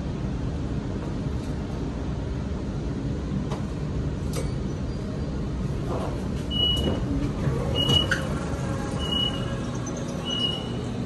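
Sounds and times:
tram rumbling: 0.0 - 11.0
short high door beep: 6.5 - 7.0, 9.0 - 9.5, 10.2 - 10.8.

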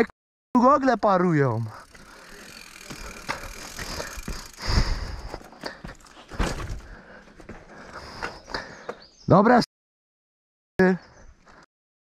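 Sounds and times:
footsteps on dirt trail: 1.7 - 9.1
bike knocks and clicks: 1.8 - 4.7, 5.3 - 7.6
heavy thumps: 5.9 - 7.7.

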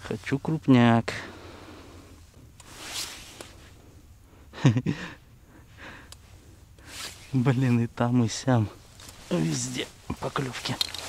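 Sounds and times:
soft rustle: 0.0 - 1.0, 1.6 - 4.0, 6.2 - 11.0.

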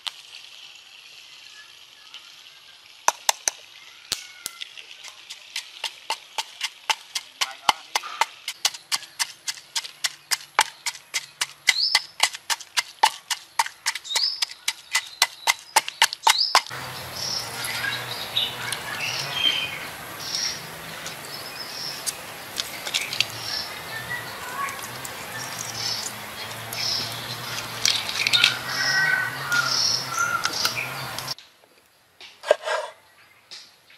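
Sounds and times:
birds chirping: 3.8 - 32.0
pestle pounding in wooden mortar: 5.0 - 16.8.

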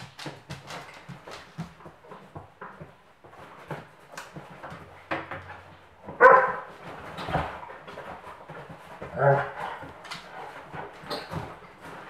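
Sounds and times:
dog claws clicking on wooden floor: 0.0 - 12.0
dog barking: 6.2 - 6.7.

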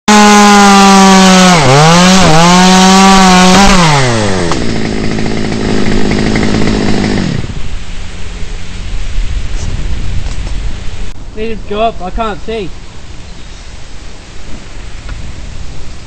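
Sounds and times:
chainsaw cutting wood: 0.1 - 7.7.

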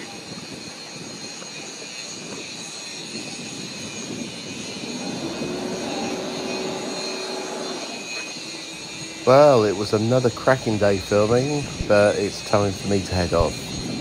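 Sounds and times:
boat engine running: 4.3 - 14.0.

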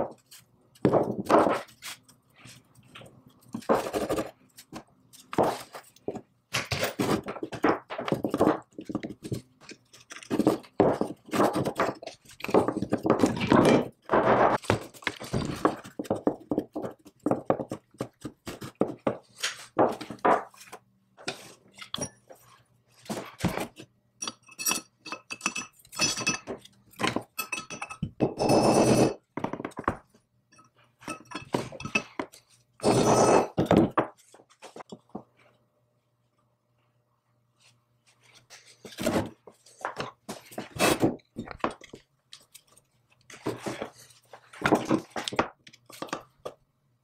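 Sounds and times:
metal parts clinking and knocking: 24.2 - 28.1.

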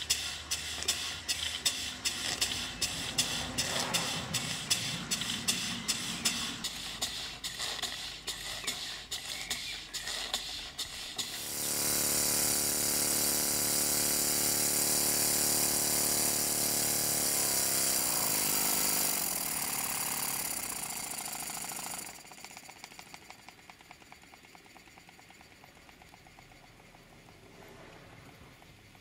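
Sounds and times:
fast even ticking: 0.0 - 13.0
steam engine hissing and chuffing: 0.0 - 29.0.

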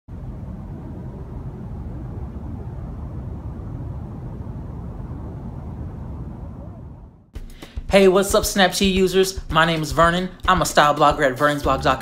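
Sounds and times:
low outdoor rumble: 0.1 - 7.3.

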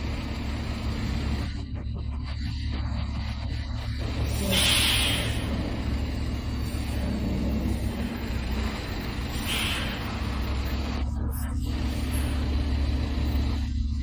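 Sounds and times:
truck diesel engine running: 0.0 - 14.0
air brake hisses: 4.4 - 5.4, 9.4 - 10.2.

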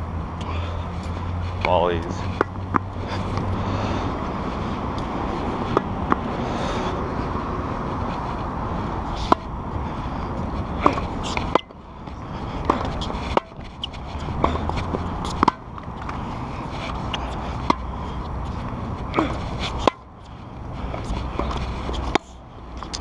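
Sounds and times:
low rumble of camera movement: 0.0 - 23.0
tennis balls struck by rackets: 1.0 - 3.5, 4.7 - 6.4, 9.1 - 9.5, 10.3 - 23.0
balls bouncing on hard court: 10.5 - 16.2.

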